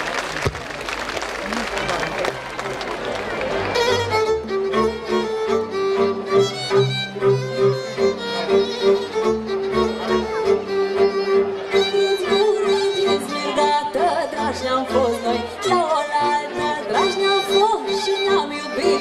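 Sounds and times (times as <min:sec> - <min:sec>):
folk band with fiddles: 0:00.0 - 0:19.0
woman singing: 0:12.0 - 0:19.0.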